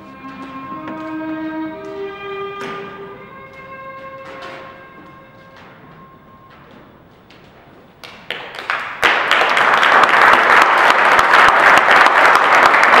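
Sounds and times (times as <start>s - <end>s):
held music note: 0.0s - 7.2s
audience clapping: 8.0s - 13.0s.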